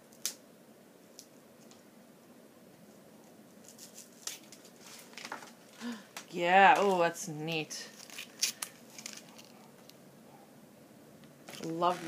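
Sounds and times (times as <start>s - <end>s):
packaging rustling: 3.6s - 5.8s, 7.9s - 9.9s, 11.4s - 12.0s.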